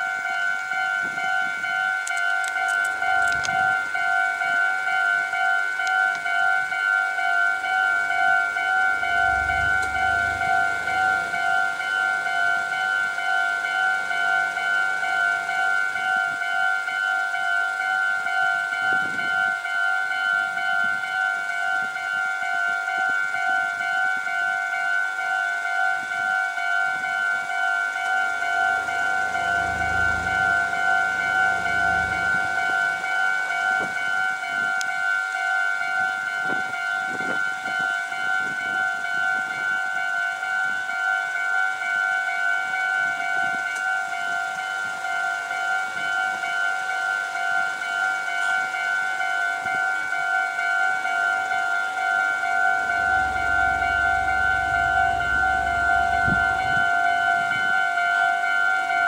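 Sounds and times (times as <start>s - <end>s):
level crossing warning bell: 0.0s - 59.0s
low rumble: 9.0s - 12.4s, 28.2s - 33.2s, 52.8s - 56.9s.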